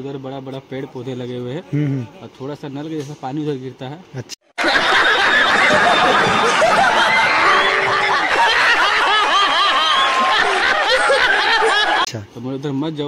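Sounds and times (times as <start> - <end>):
group of people laughing: 4.6 - 12.1.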